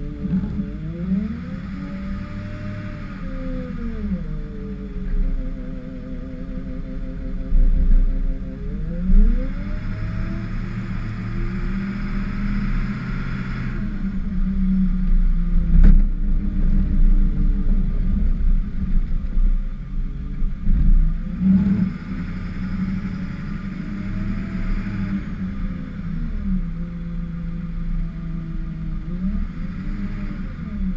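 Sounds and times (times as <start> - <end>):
truck engine revving: 8.5 - 14.6, 20.6 - 27.4.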